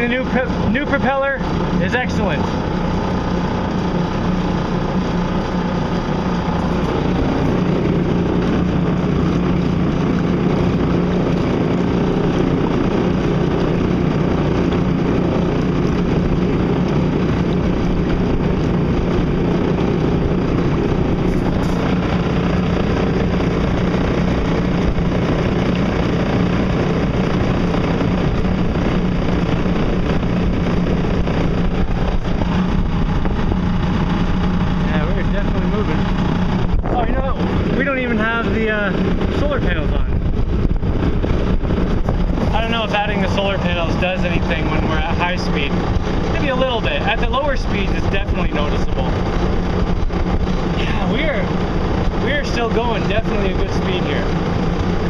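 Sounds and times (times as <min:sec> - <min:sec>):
water rushing along hull: 0:00.0 - 0:55.0
electric motor humming: 0:00.2 - 0:39.9.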